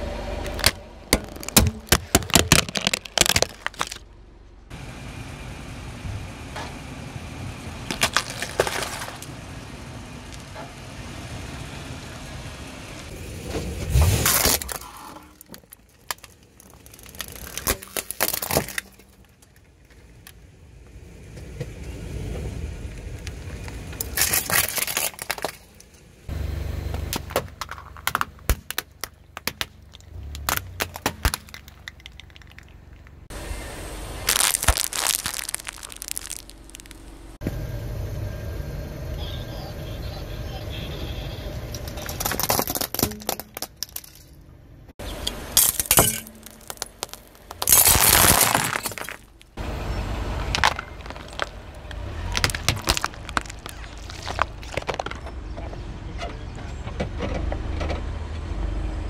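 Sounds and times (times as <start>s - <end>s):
tyre and engine rumble: 0.0s - 59.0s
plastic toys cracking under tyre: 0.4s - 4.1s, 7.9s - 9.3s, 14.2s - 20.4s, 23.0s - 26.0s, 27.1s - 33.3s, 34.3s - 37.2s, 41.8s - 44.1s, 45.6s - 49.6s, 50.4s - 55.4s.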